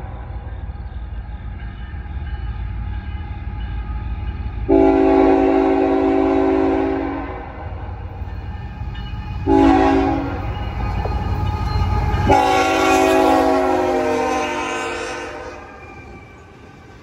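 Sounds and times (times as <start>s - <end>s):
freight train rumble: 0.0s - 17.0s
train horn blast: 4.7s - 7.8s, 9.4s - 10.4s, 12.3s - 15.8s.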